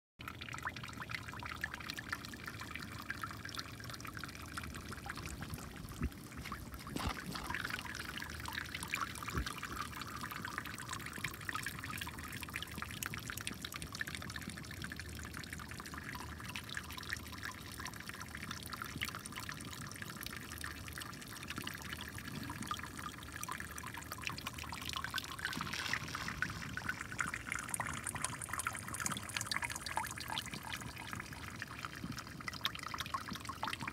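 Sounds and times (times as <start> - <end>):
water splashing into storm drain: 4.9 - 10.1.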